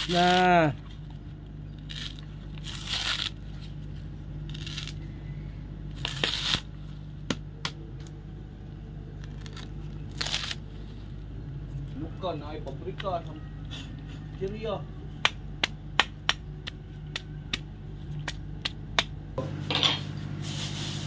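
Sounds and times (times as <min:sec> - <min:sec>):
coconut husk fibre tearing: 0:00.0 - 0:08.2, 0:09.1 - 0:11.2
steady low hum: 0:00.0 - 0:21.0.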